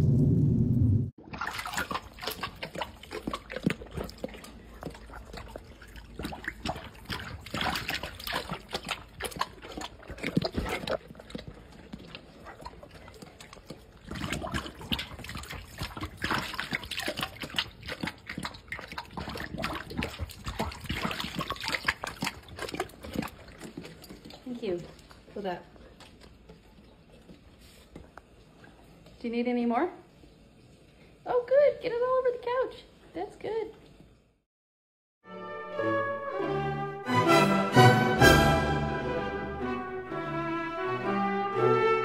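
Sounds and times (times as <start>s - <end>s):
dog lapping water from bowl: 1.2s - 29.4s.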